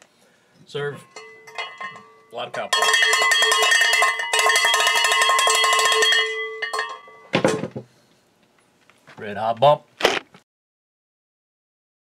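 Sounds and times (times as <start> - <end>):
cowbell struck rapidly: 1.1 - 7.2.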